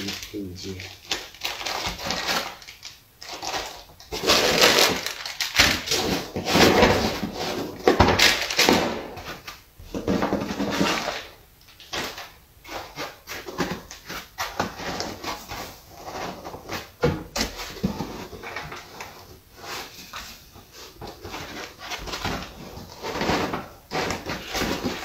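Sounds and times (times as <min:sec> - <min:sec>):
plastic packaging crinkling: 0:00.0 - 0:09.6, 0:21.0 - 0:25.0.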